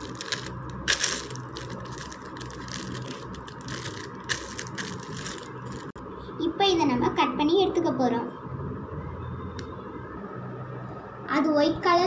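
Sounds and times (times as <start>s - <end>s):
plastic cover crinkling: 0.0s - 6.0s
steady low hum: 0.0s - 7.4s.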